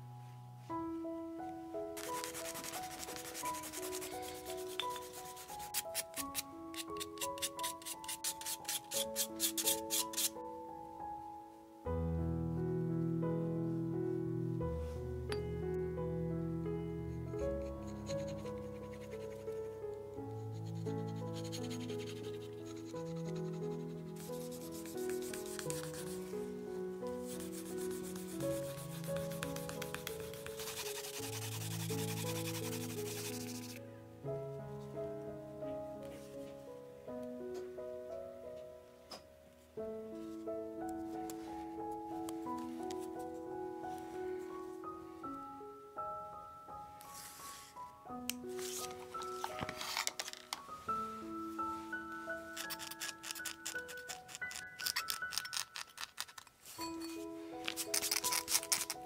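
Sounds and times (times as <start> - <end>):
background music: 0.0 - 59.0
cloth rubbing on leather: 2.0 - 6.0.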